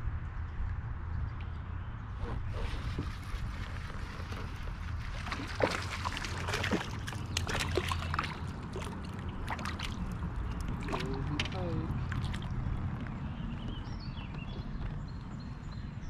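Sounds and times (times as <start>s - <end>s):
water splashing against kayak: 2.2s - 12.8s.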